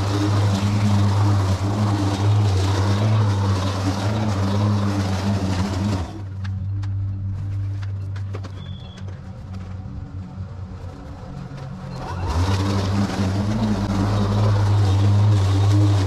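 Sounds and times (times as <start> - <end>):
grass being cut: 0.0 - 6.4, 12.0 - 16.0
lawn mower humming: 0.0 - 8.4, 9.2 - 16.0.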